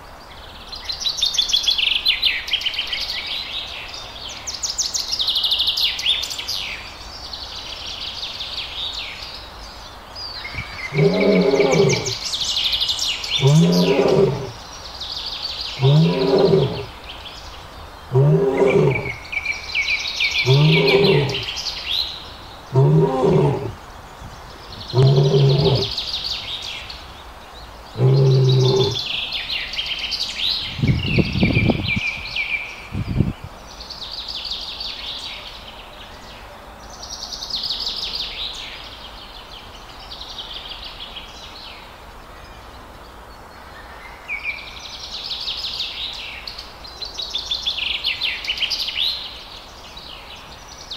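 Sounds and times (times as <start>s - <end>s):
birds chirping: 10.2s - 29.5s
lion roaring: 10.8s - 12.2s, 13.4s - 14.6s, 15.8s - 16.9s, 18.1s - 19.2s, 20.4s - 21.5s, 22.7s - 23.8s, 24.7s - 26.0s, 28.0s - 29.1s.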